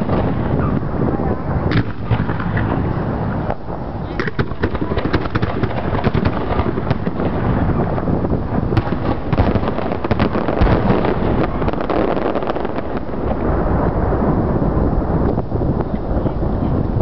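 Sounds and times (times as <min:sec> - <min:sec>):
fireworks bursting: 0:00.0 - 0:16.9.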